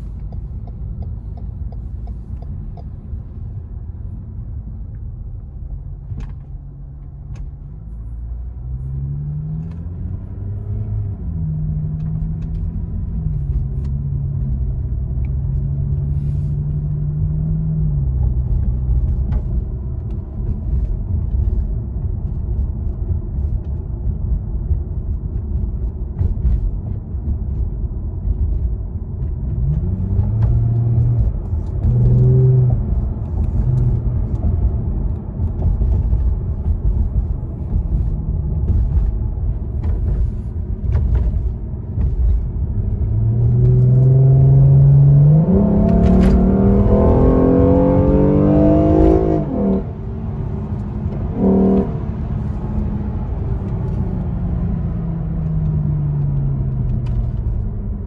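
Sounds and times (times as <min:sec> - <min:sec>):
car engine rumble: 0:00.0 - 0:58.0
road noise: 0:00.0 - 0:58.0.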